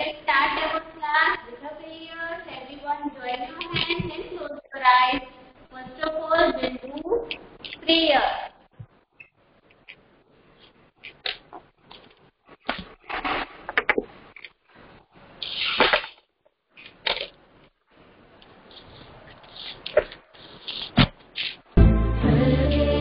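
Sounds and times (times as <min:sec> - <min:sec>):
bursts of hiss: 0:15.4 - 0:16.0.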